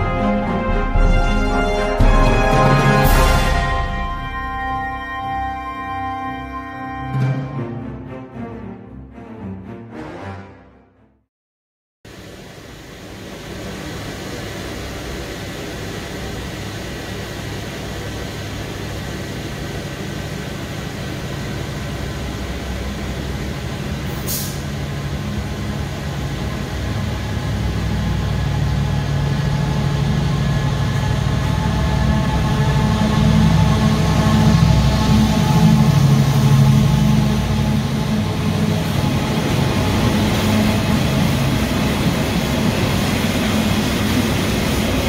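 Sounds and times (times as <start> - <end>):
diesel locomotive engine: 0.0 - 9.3, 12.1 - 45.0
short high hiss: 24.1 - 24.7.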